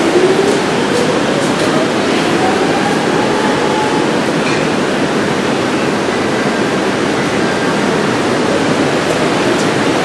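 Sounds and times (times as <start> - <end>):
electric train running noise: 0.0 - 10.0.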